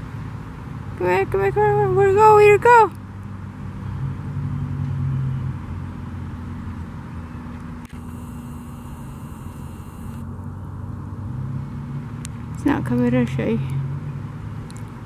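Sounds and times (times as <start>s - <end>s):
low mechanical hum: 7.5s - 10.8s.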